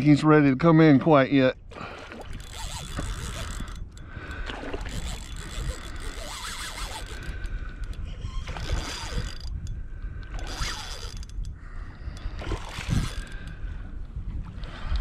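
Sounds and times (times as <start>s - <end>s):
fishing reel drag running: 2.2s - 13.6s.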